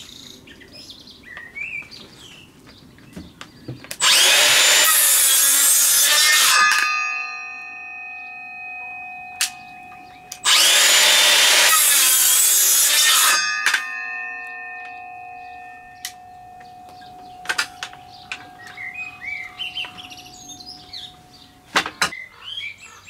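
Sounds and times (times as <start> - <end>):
birds chirping: 0.0 - 4.8, 7.9 - 11.6, 14.0 - 23.0
circular saw cutting wood: 4.0 - 7.6, 9.3 - 21.1
sharp clack: 6.1 - 7.1.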